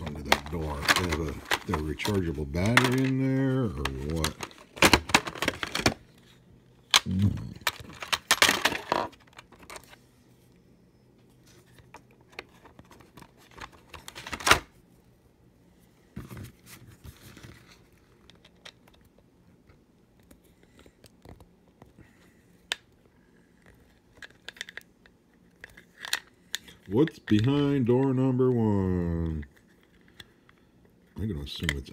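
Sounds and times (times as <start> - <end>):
plastic rustling and scraping: 0.0 - 6.4, 16.1 - 18.8.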